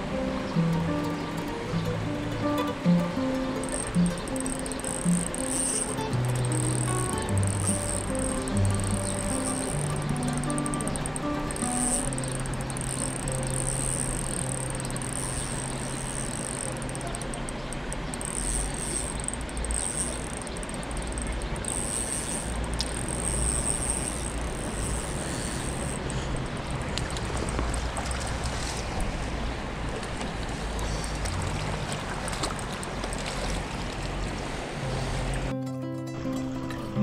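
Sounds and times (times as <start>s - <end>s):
river water flowing: 0.0s - 37.0s
pulsing high hiss: 3.6s - 17.4s, 21.7s - 26.1s.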